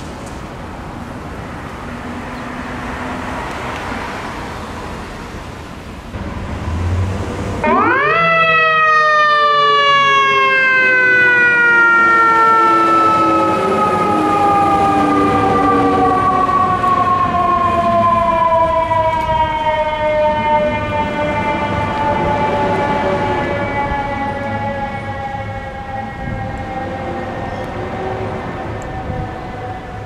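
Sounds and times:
diesel engine rumbling: 0.0 - 8.6
mechanical siren wailing: 7.6 - 30.0.

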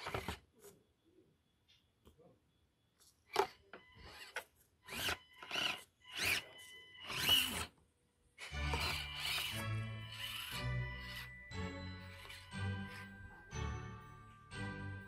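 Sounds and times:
toy truck motor whining: 0.0 - 0.4, 3.3 - 7.8, 8.4 - 13.1.

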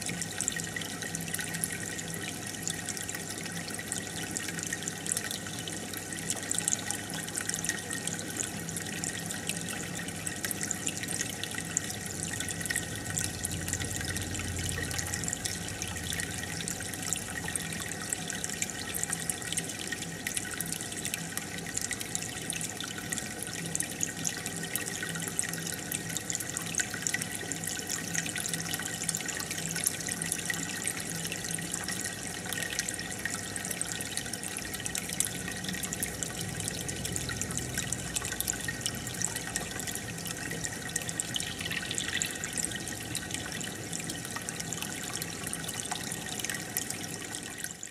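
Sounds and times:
aquarium water bubbling: 0.0 - 47.9
small water drips and splashes: 0.0 - 47.9
faint low hum: 12.2 - 18.4.

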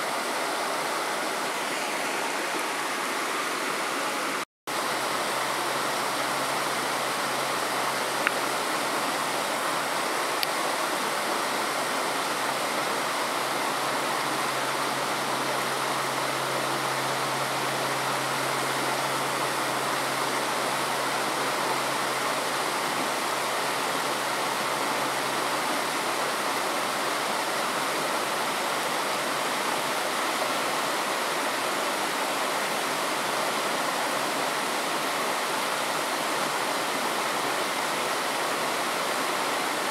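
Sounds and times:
rocky stream rushing: 0.0 - 39.9.

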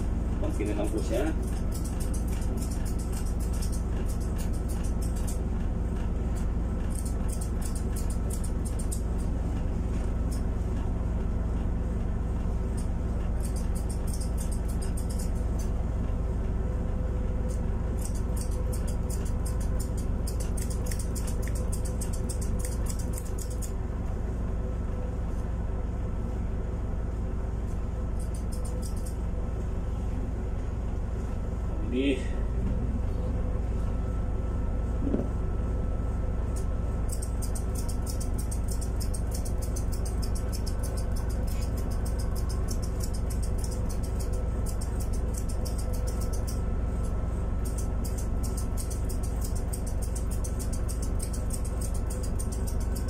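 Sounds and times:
steady low hum: 0.0 - 53.0
scissors snipping fur: 0.4 - 10.9, 12.7 - 15.8, 17.4 - 23.8, 28.2 - 29.2, 36.5 - 53.0.

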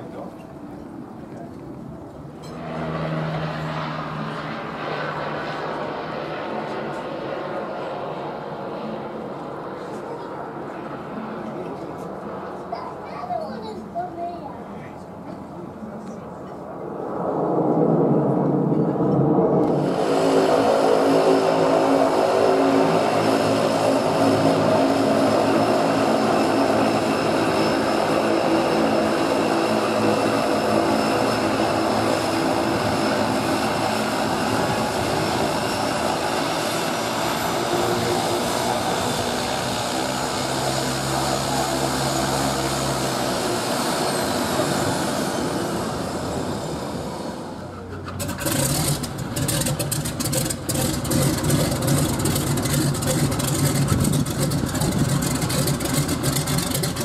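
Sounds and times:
turboprop engine running: 15.0 - 57.0.

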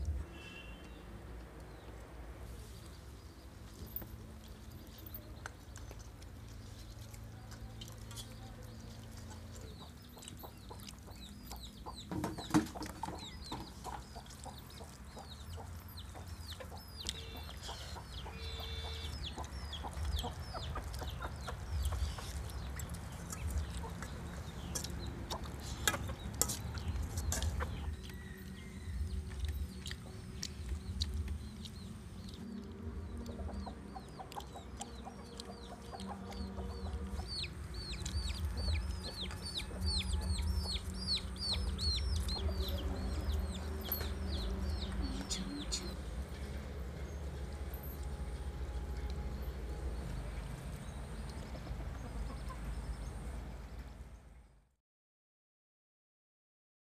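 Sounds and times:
small birds chirping: 0.0 - 54.3
chickens clucking: 5.3 - 47.1, 50.2 - 53.2.

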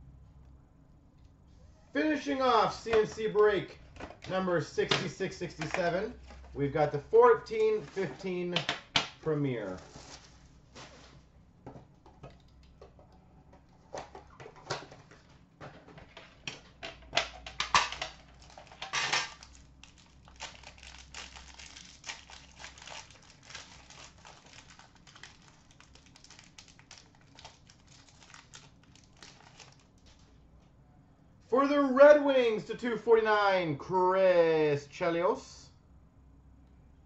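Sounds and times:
plastic wrapping crinkling: 18.2 - 30.4.

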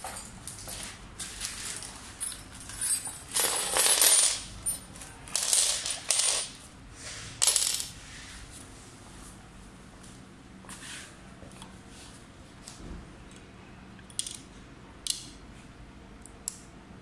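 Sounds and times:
metal keys clinking on floor: 0.0 - 6.6.

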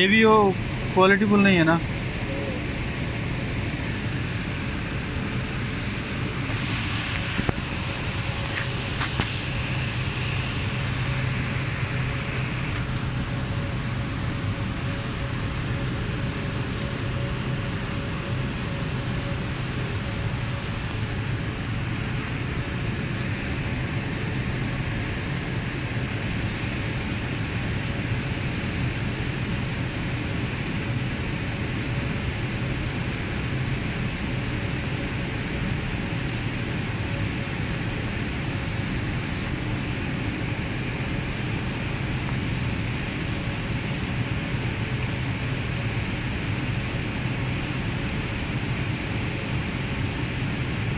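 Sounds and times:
cooling fans whirring: 0.0 - 50.9
faint constant tone: 0.0 - 50.9
low hum: 0.5 - 50.9.

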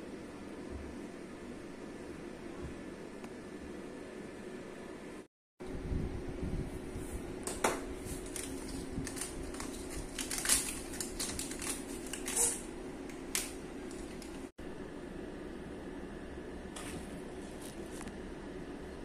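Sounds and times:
steady low hum: 0.0 - 19.0
foil pouch crinkling: 8.0 - 14.5
plastic cassette handled on bench: 8.3 - 14.4.

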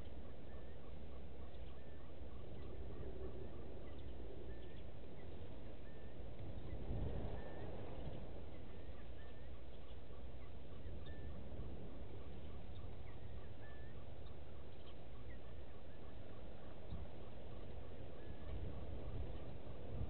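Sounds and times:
low steady rumble: 0.0 - 20.0
pulsing bird call: 0.0 - 20.0
chirping bird whistles: 0.2 - 11.6, 12.2 - 16.2.

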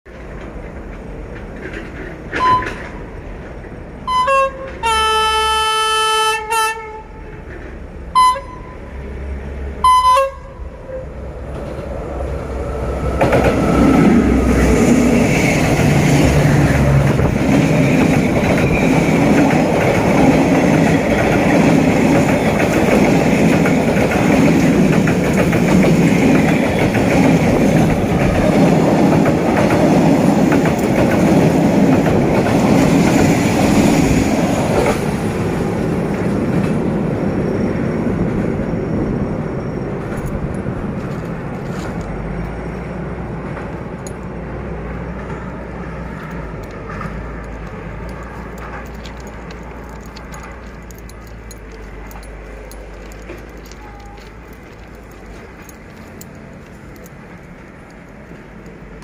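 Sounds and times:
train wheels rumbling on rails: 0.1 - 59.0
locomotive horn toots and blast: 2.3 - 3.0, 4.0 - 7.5, 8.1 - 9.1, 9.8 - 11.2.

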